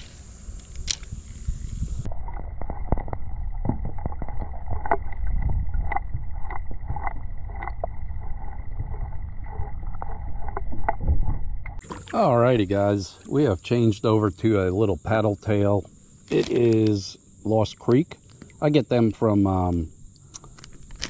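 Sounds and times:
muffled underwater river rumble: 1.2s - 13.6s
underwater clicks and ticks: 2.1s - 12.2s, 19.6s - 21.0s.

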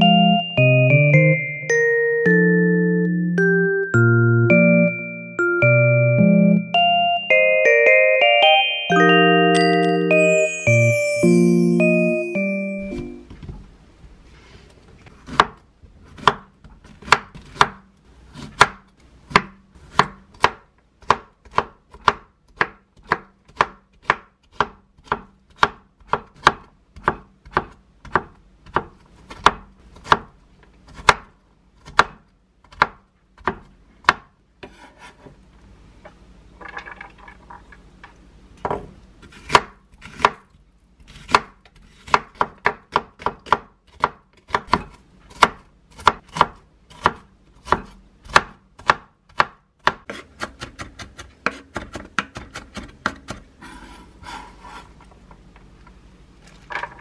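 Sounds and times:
knife chopping on wooden board: 15.2s - 30.3s, 30.9s - 35.2s, 38.7s - 40.4s, 41.1s - 53.5s.

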